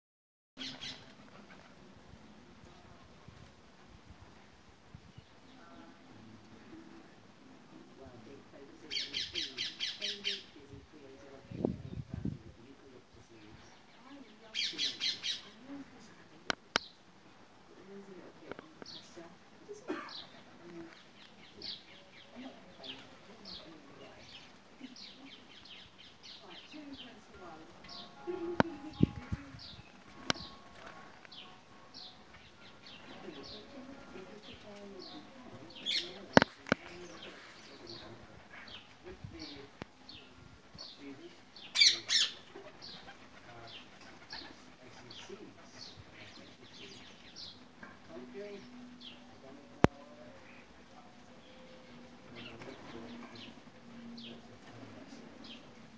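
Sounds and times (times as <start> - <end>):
parakeets chattering: 8.9 - 10.5, 14.5 - 15.6, 27.9 - 40.3, 41.5 - 47.6
parakeets chirping: 14.5 - 15.6, 41.6 - 47.6.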